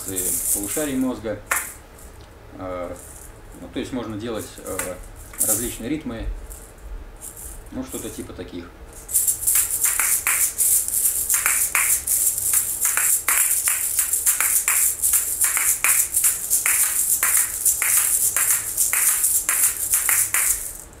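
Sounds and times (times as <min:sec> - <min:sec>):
asalato shells clacking: 0:00.0 - 0:02.2, 0:04.4 - 0:05.8, 0:09.0 - 0:21.0
seeds rattling hiss: 0:00.0 - 0:08.2, 0:08.9 - 0:21.0.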